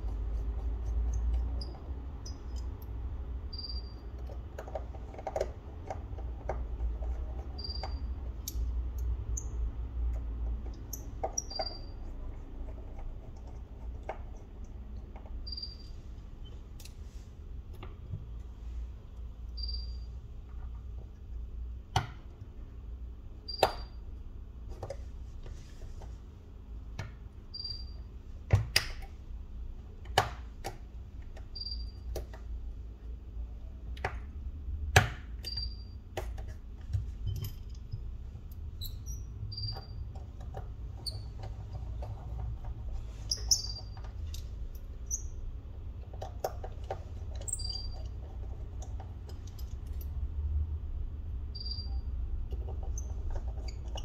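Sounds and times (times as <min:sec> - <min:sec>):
steady low hum: 0:00.0 - 0:53.8
faint high chirp: 0:03.5 - 0:04.1, 0:15.4 - 0:16.6, 0:19.5 - 0:20.2, 0:27.5 - 0:28.1, 0:31.6 - 0:32.1, 0:35.4 - 0:36.0, 0:38.8 - 0:40.1, 0:43.3 - 0:44.0, 0:47.5 - 0:48.1, 0:51.5 - 0:52.1
small clicks and taps: 0:04.0 - 0:15.4, 0:33.9 - 0:38.6.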